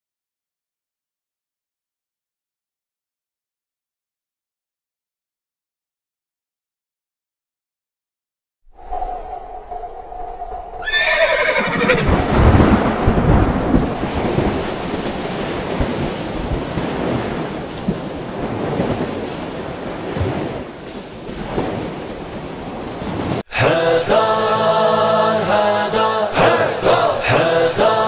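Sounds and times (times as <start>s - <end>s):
low noisy rumble: 8.7s - 15.2s
horse whinnying: 10.8s - 12.3s.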